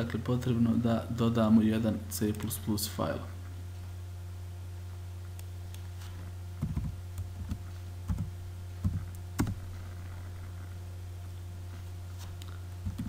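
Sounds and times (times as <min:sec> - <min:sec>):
steady low hum: 0:00.0 - 0:13.0
computer keyboard typing: 0:06.6 - 0:09.6.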